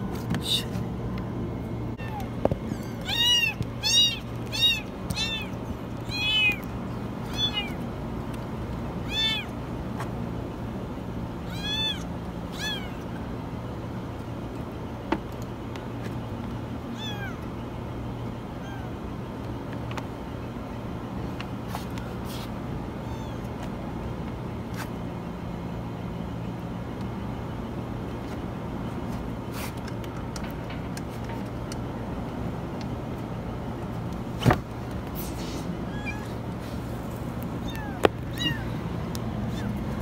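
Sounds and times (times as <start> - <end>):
steady low hum: 0.0 - 40.0
kitten meowing: 2.0 - 7.8, 9.0 - 9.6, 11.4 - 13.2, 17.0 - 17.4, 18.5 - 18.9, 23.0 - 23.5, 35.9 - 36.4, 37.6 - 38.8.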